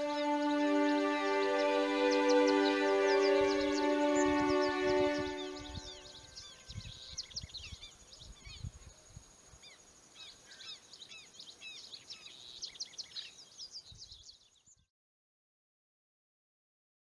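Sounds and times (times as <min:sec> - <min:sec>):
small birds chirping: 0:00.0 - 0:14.9.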